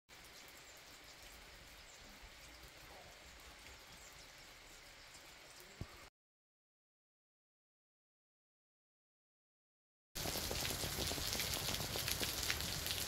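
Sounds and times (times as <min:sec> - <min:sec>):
light rain patter: 0:00.1 - 0:06.1, 0:10.2 - 0:13.0.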